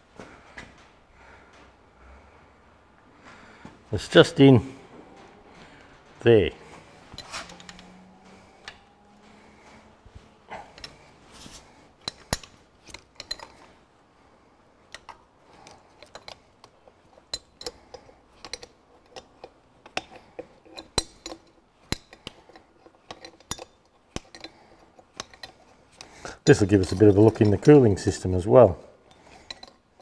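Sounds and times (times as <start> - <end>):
spanner clicking against bolt: 14.9 - 27.8.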